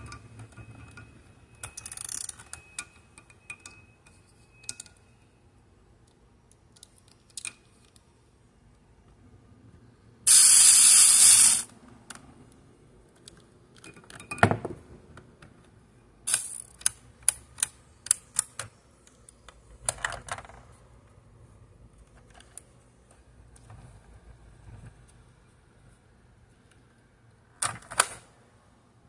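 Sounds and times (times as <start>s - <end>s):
toy winch ratchet clicks: 10.3s - 11.7s.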